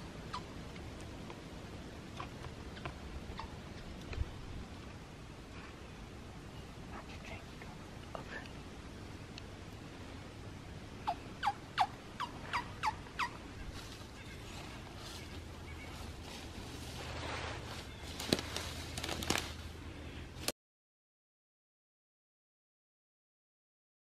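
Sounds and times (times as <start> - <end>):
faint rustling: 13.5 - 19.8.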